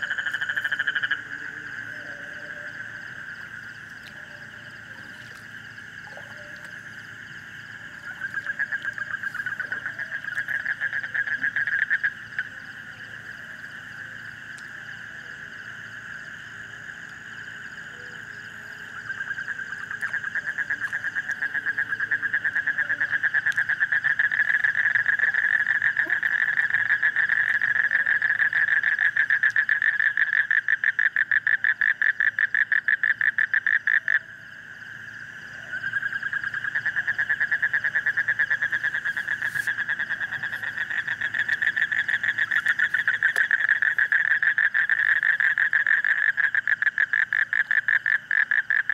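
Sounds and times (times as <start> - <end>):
frogs trilling: 0.0 - 48.9.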